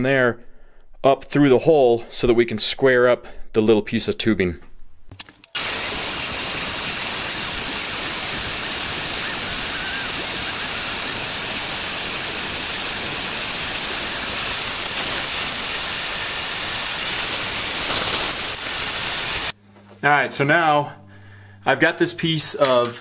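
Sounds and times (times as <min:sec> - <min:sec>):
shop vacuum running: 0:05.6 - 0:22.0.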